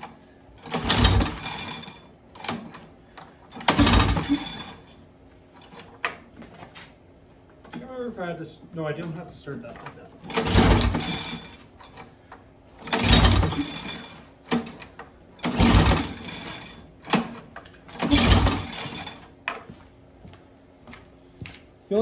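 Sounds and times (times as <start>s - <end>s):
recoil starter whirring: 0.0s - 6.9s, 9.8s - 19.4s.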